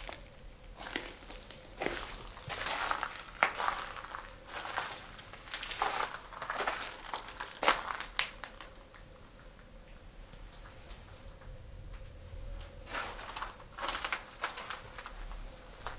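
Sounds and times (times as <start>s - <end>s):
footsteps crunching over rubble: 0.0s - 9.1s, 12.7s - 15.9s.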